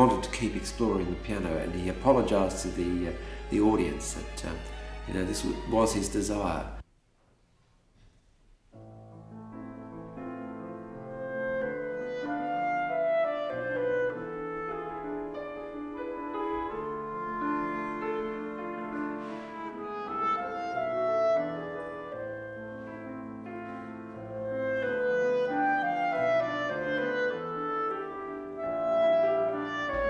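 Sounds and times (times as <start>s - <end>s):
piano accompaniment: 0.0s - 6.8s, 8.7s - 30.0s
clarinet melody: 9.6s - 30.0s.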